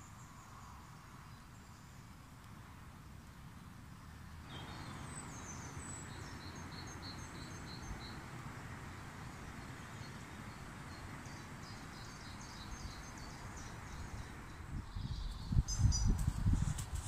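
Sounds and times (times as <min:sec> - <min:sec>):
songbirds chirping: 0:00.0 - 0:17.0
woodland background rush: 0:00.0 - 0:17.0.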